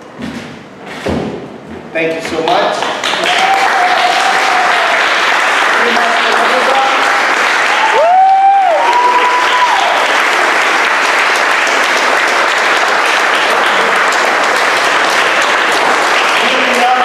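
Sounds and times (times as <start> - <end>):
crowd applauding: 2.8 - 17.0
person cheering: 3.2 - 5.0, 7.7 - 10.1.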